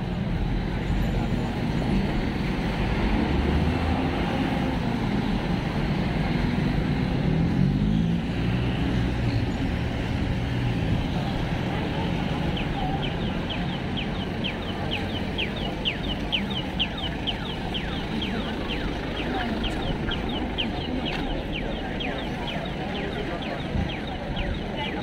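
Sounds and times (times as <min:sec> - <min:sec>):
traffic noise: 0:00.0 - 0:25.0
crowd noise: 0:09.5 - 0:25.0.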